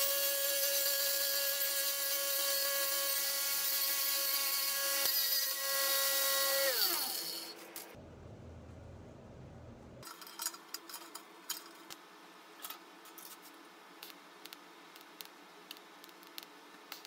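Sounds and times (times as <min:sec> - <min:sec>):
cut-off saw whining: 0:00.0 - 0:07.6
disc grinding through steel mesh: 0:06.6 - 0:07.8.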